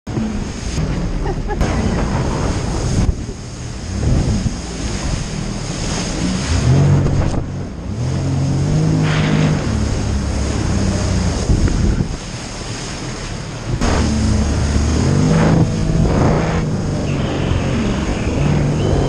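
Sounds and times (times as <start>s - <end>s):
jet ski engine drone: 0.1s - 19.0s
wind buffeting microphone: 0.1s - 19.0s.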